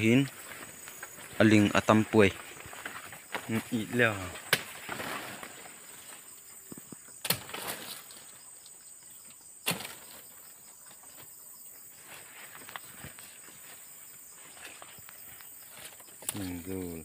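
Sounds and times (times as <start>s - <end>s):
high insect buzz: 0.0s - 17.0s
machete strikes on woody stem: 4.5s - 4.7s, 7.2s - 7.7s, 9.6s - 10.0s.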